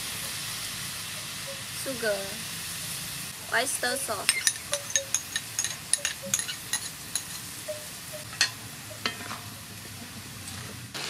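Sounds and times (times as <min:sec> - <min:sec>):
chicken sizzling in oil: 0:00.0 - 0:11.0
oil popping and crackling: 0:04.0 - 0:11.0.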